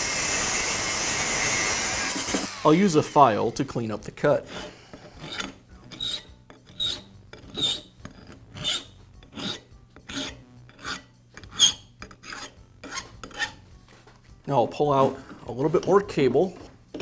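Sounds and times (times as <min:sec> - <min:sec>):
hand file rasping on steel: 0:04.4 - 0:13.6.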